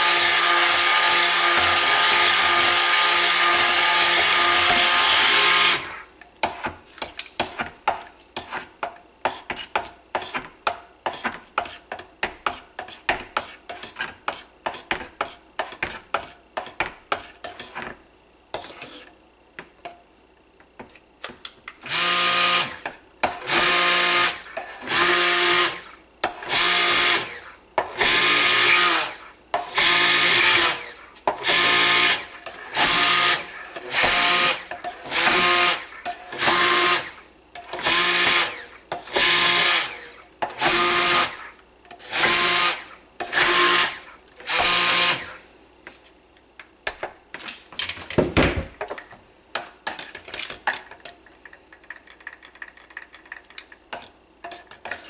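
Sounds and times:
stick blender running: 0:00.0 - 0:06.0, 0:21.8 - 0:45.4.

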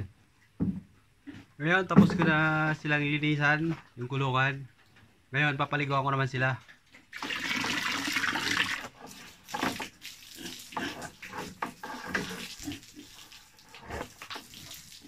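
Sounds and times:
water splashing and spattering: 0:07.1 - 0:15.0
hose spraying water: 0:07.2 - 0:15.0.

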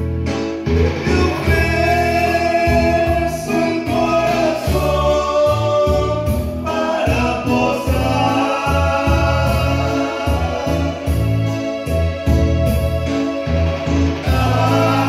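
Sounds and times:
musical accompaniment: 0:00.0 - 0:15.0
man singing into a microphone: 0:00.8 - 0:11.8, 0:14.2 - 0:15.0.

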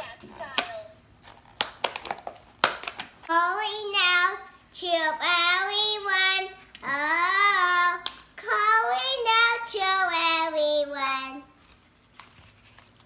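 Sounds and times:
girl singing: 0:03.3 - 0:11.6.

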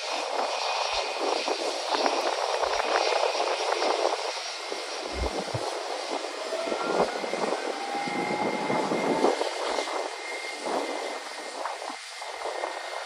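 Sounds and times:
jet engines hissing and whining: 0:00.0 - 0:13.0
faint rising whine: 0:04.9 - 0:08.2.

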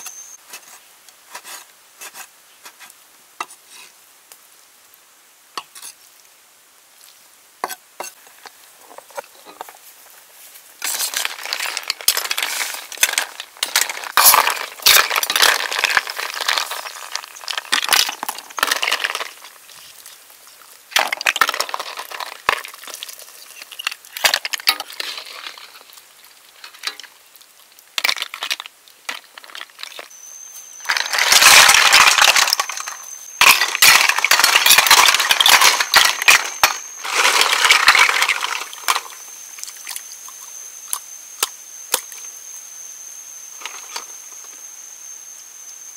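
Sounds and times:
snail shells clinking on metal: 0:10.8 - 0:19.6, 0:30.8 - 0:39.3.

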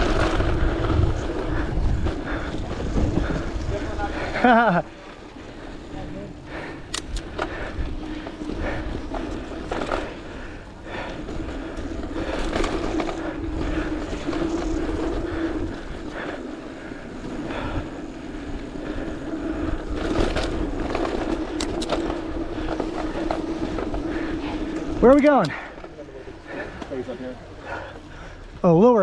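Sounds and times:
knocks and rattles over bumps: 0:00.0 - 0:04.5
wind rumble on microphone: 0:00.0 - 0:04.6
bike tyres on dirt: 0:00.0 - 0:29.0.

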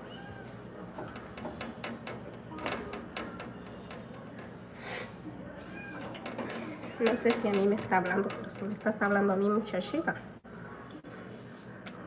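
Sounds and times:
high-pitched hiss: 0:04.7 - 0:05.3.

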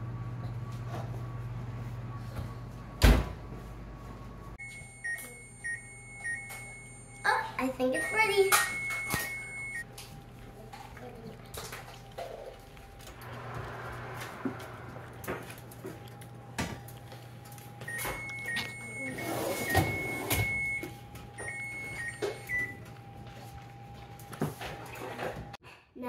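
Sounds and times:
electronic beep: 0:04.6 - 0:09.8, 0:17.9 - 0:22.8.

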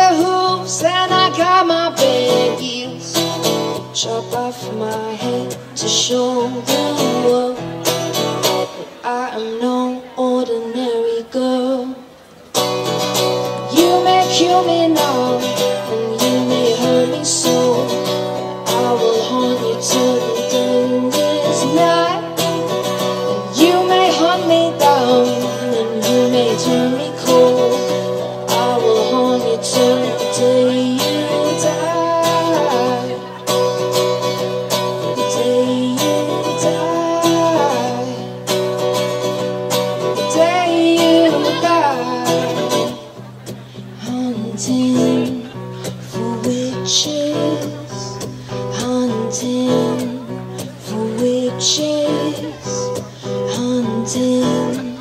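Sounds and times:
woman singing: 0:00.0 - 0:03.2, 0:09.0 - 0:12.0, 0:13.6 - 0:18.0, 0:18.6 - 0:33.4, 0:35.0 - 0:38.3, 0:40.2 - 0:42.9, 0:46.1 - 0:55.0
acoustic guitar strumming: 0:00.0 - 0:55.0.

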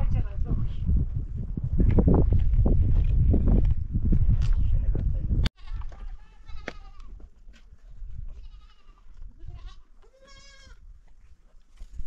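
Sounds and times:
goats bleating: 0:05.6 - 0:07.2, 0:08.4 - 0:10.8.

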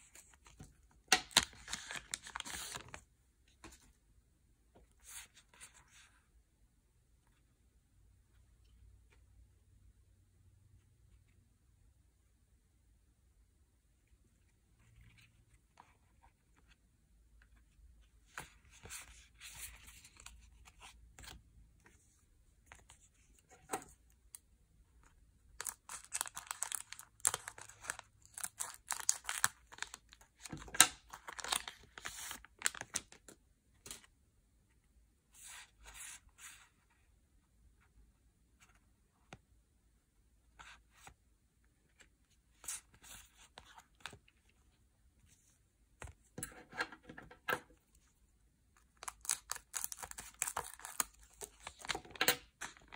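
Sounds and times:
foil wrappers crinkling and tearing: 0:25.6 - 0:30.1, 0:49.0 - 0:51.2.

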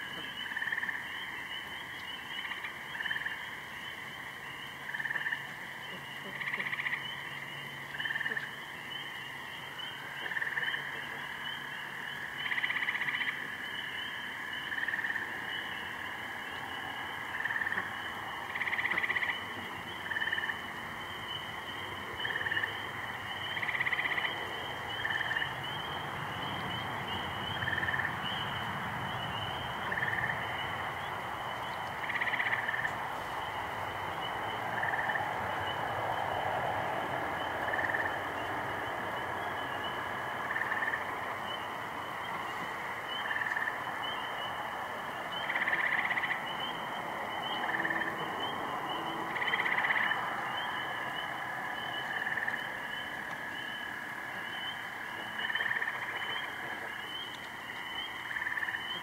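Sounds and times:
high-pitched frog chorus: 0:00.0 - 0:59.0
louder frog calls: 0:00.0 - 0:59.0.

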